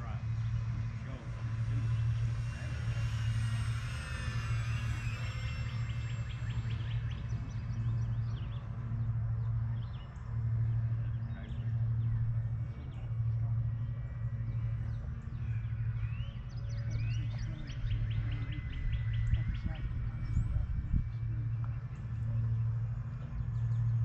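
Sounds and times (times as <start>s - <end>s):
low hum: 0.0s - 24.0s
birds chirping and calling: 14.3s - 24.0s.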